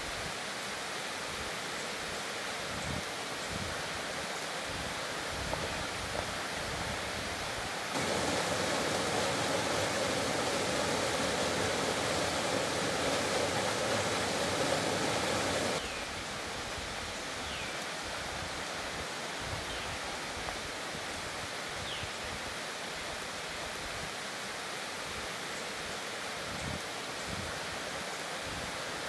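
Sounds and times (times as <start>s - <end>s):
creek rushing: 0.0s - 19.4s
water cascading over boulders: 0.0s - 29.0s.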